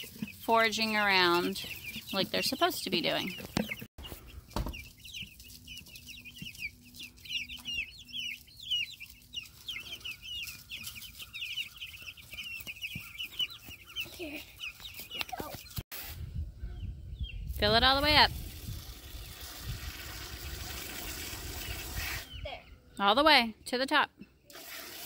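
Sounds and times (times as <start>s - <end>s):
chicks peeping: 0.0s - 15.8s, 20.4s - 23.2s.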